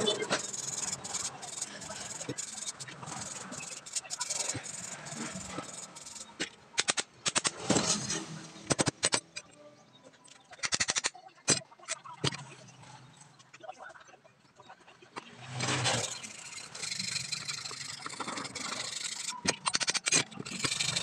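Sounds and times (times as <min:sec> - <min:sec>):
metal parts scraping on workbench: 0:00.0 - 0:06.2, 0:07.6 - 0:09.2, 0:15.5 - 0:21.0
metallic clicks and clatter: 0:00.0 - 0:09.6, 0:10.2 - 0:13.7, 0:15.2 - 0:21.0.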